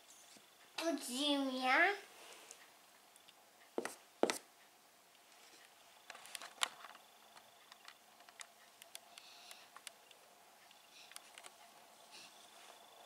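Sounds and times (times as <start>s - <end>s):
marker tapping a whiteboard: 3.8s - 4.5s.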